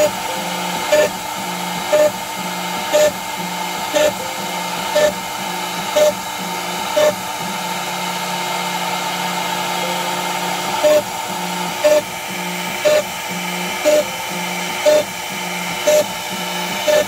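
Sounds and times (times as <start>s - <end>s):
router spindle cutting wood: 0.0s - 17.0s.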